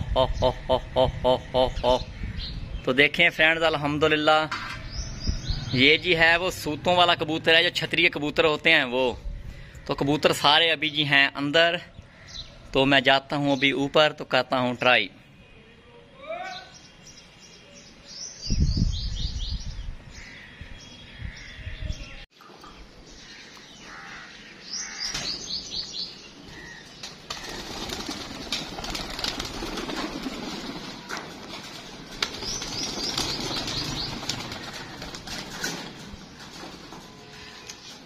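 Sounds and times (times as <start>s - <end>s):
pigeon wings flapping: 27.0s - 37.0s.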